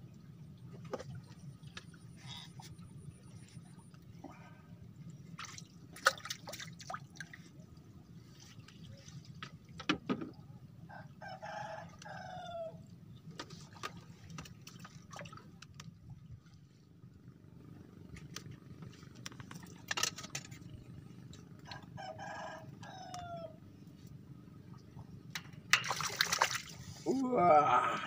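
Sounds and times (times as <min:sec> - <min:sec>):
rooster crowing: 0:21.7 - 0:23.6.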